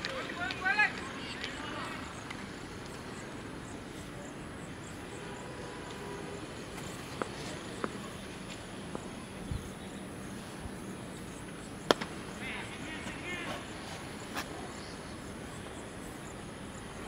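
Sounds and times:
open-air background noise: 0.0 - 17.0
cricket bat striking ball: 11.8 - 13.3.

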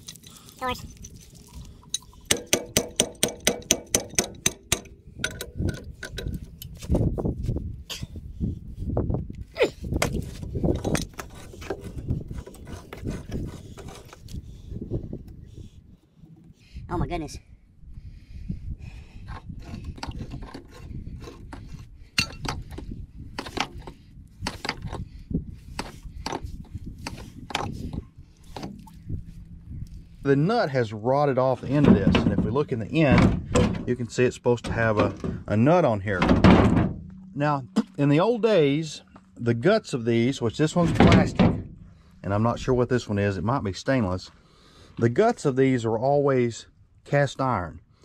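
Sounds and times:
metal clinks and knocks: 0.0 - 6.8, 10.6 - 14.2, 19.3 - 25.0
wrench clanking and scraping: 0.0 - 7.1, 10.4 - 14.4, 19.2 - 25.1, 25.7 - 28.8
metal clank: 22.2 - 22.6
steady low rumble: 25.0 - 31.2.

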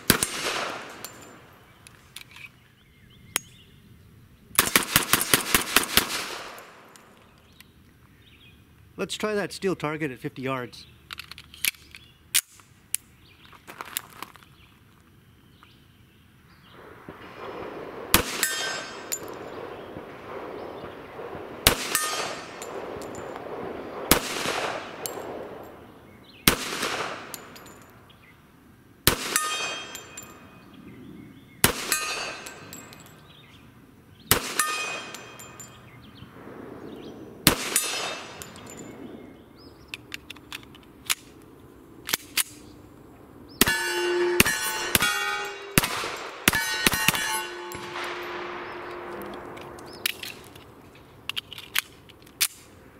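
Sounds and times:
pistol shots: 0.0 - 1.8, 4.6 - 7.2, 16.7 - 27.8, 29.1 - 30.5, 31.6 - 33.2, 34.2 - 39.4, 43.6 - 50.6
steel plate ringing: 18.4 - 19.6, 29.3 - 30.6, 31.9 - 33.3, 34.5 - 36.0, 43.6 - 50.0.

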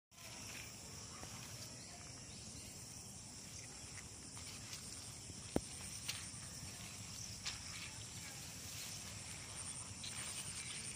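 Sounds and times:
insects chirring: 0.1 - 10.9.

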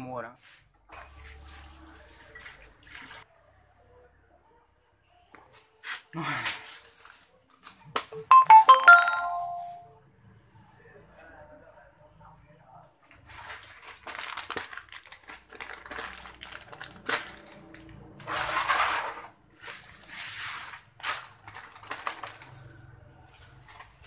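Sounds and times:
plastic packet crinkling: 13.2 - 18.1, 21.0 - 22.7.

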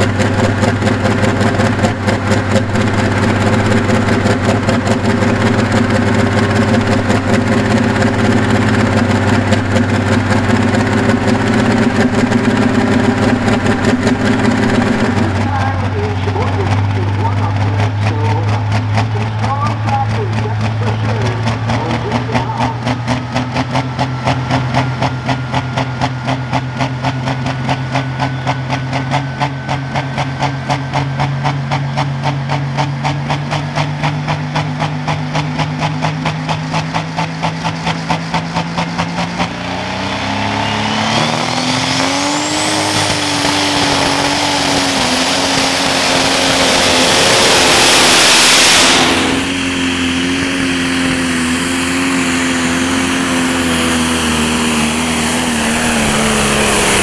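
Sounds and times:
diesel engine pulsing lope: 0.0 - 57.0
turbo whistle rising: 40.2 - 44.2, 46.6 - 50.2.

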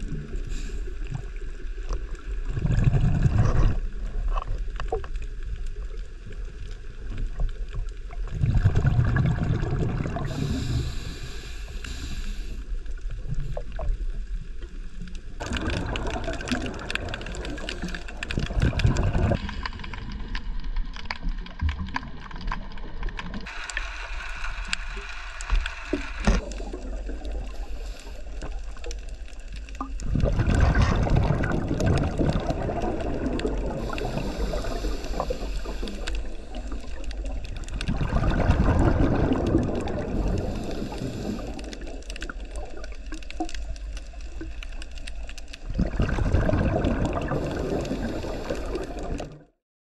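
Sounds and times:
underwater bubbles gurgling: 0.0 - 49.6
quiet hiss: 23.5 - 29.8, 33.3 - 37.8.

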